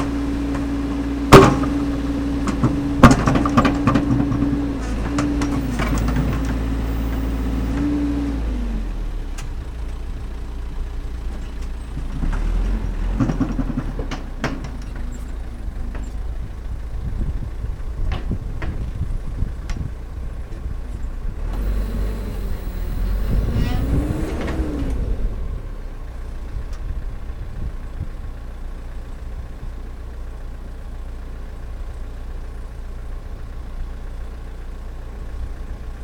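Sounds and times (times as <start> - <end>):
backhoe diesel engine running: 0.0 - 36.0
steady whine: 21.6 - 25.6.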